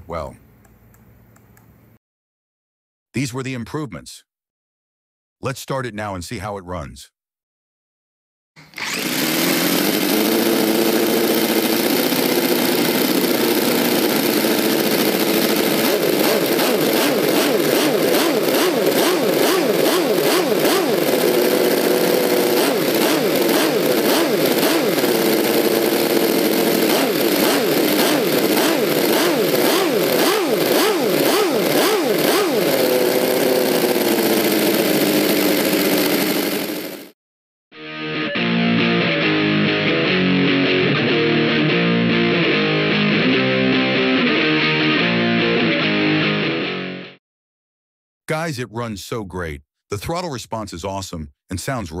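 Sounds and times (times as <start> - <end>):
model engine revving: 8.6 - 37.2.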